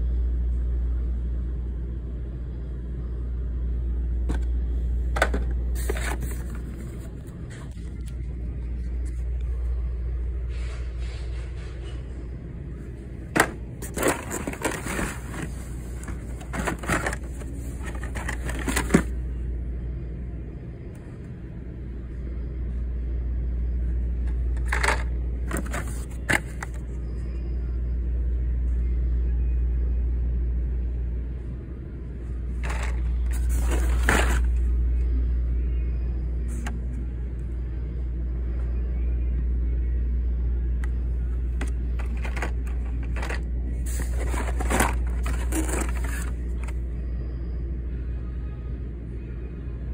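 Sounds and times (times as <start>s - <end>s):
plastic and cardboard crinkling: 5.3s - 7.2s, 13.4s - 19.1s, 24.6s - 26.8s, 32.6s - 34.6s, 42.0s - 46.8s.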